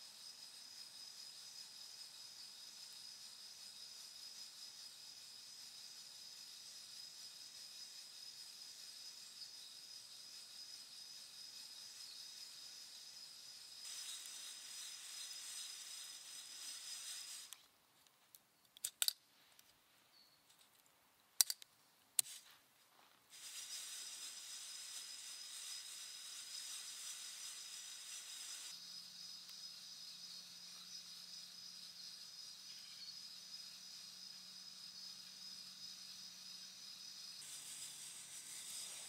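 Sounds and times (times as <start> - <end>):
insects droning: 0.0 - 17.7, 23.3 - 39.0
metallic clicks of coffee roaster: 21.4 - 22.3.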